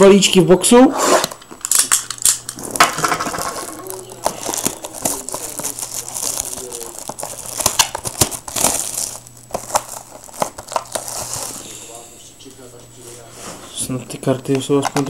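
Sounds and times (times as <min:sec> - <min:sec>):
plastic shrink-wrap crinkling: 0:01.6 - 0:13.3.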